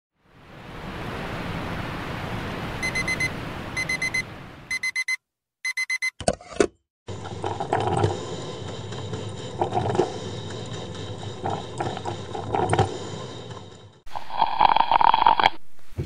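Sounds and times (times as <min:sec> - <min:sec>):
digital alarm clock beeping: 0:02.8 - 0:06.2.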